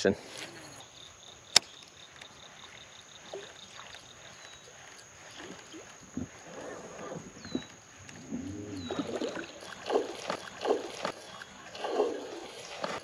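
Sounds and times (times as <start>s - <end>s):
popper lure splashy chugs: 8.8s - 13.0s.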